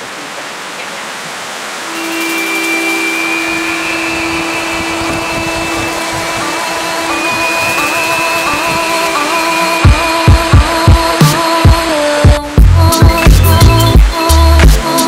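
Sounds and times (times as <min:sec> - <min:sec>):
water rushing over rock: 0:00.0 - 0:13.3
music with long held notes: 0:01.9 - 0:15.0.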